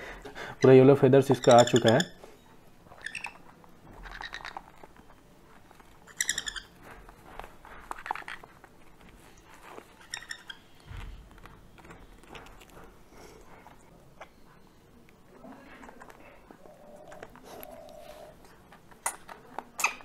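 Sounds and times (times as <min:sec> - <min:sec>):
parrot chicks calling: 0:01.3 - 0:02.2, 0:02.9 - 0:03.4, 0:06.1 - 0:06.8, 0:10.0 - 0:10.8.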